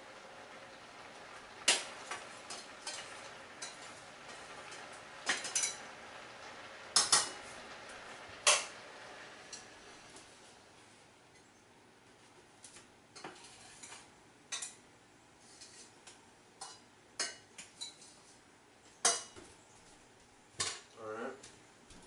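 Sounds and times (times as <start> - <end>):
pots and utensils clinking: 1.6 - 8.8, 16.6 - 18.2, 19.0 - 19.4.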